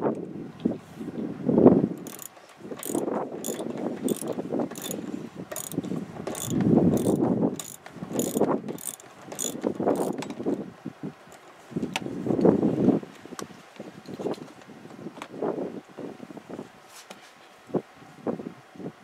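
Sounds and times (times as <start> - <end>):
ratchet wrench clicking: 2.0 - 10.2
knocks and rustling handling wrench: 2.0 - 10.5.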